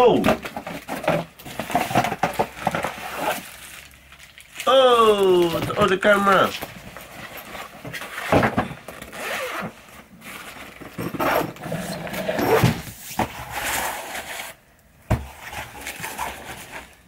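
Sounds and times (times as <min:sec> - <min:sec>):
bag scraping and rustling: 0:00.4 - 0:04.0, 0:05.4 - 0:14.6, 0:15.2 - 0:17.0
zipper being pulled open: 0:09.1 - 0:09.8, 0:11.0 - 0:12.9.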